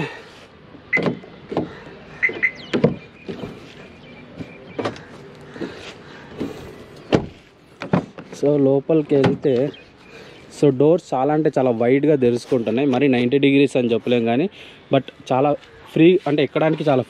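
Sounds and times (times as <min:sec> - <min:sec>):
car door clicks and clunks: 0:00.9 - 0:03.4, 0:04.4 - 0:05.1, 0:07.0 - 0:08.2.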